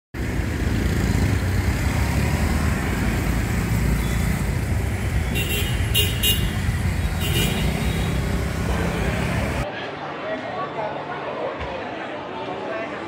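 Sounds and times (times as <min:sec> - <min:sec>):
motorbikes and cars passing: 0:00.2 - 0:09.7
short horn beeps: 0:05.2 - 0:08.2.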